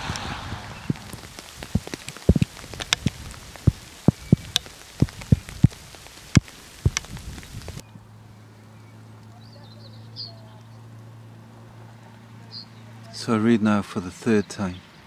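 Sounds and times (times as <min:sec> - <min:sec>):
raindrops tapping microphone: 0:00.0 - 0:07.8.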